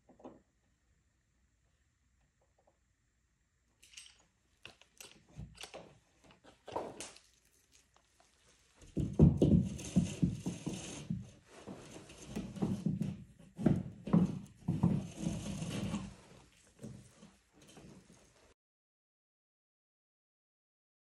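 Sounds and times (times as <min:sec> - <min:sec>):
rustling scraping and thumps: 0:06.3 - 0:18.6.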